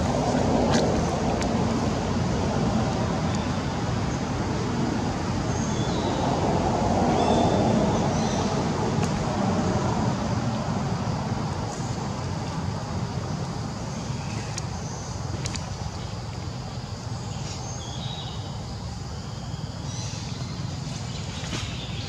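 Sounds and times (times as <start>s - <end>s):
outdoor rumble and hiss: 0.0s - 22.0s.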